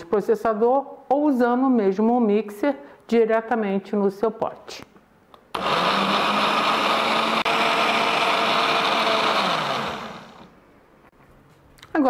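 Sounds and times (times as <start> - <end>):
blender motor running: 5.5 - 10.6.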